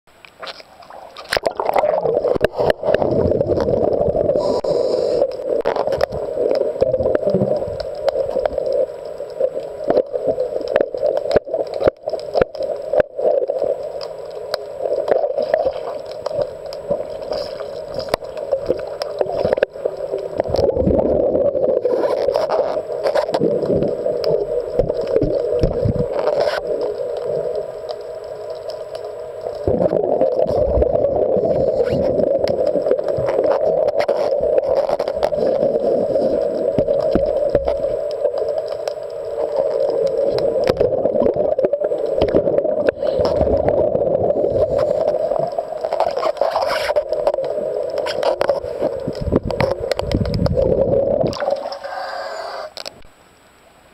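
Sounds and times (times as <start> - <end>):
muffled underwater rushing: 0.1 - 53.1
underwater clicks and knocks: 21.9 - 26.6, 45.8 - 51.8.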